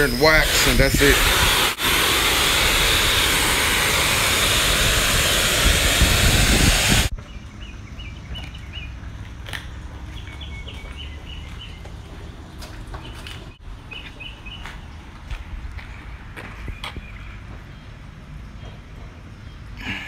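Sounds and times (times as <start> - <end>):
pressure washer spraying water: 0.0 - 7.1
birds chirping: 6.3 - 9.2, 9.8 - 20.0.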